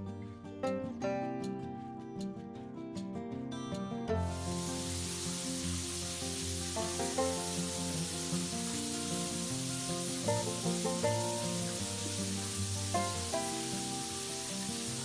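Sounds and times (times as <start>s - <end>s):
background music with melody: 0.0s - 15.0s
shower water spraying on tiles: 4.2s - 15.0s.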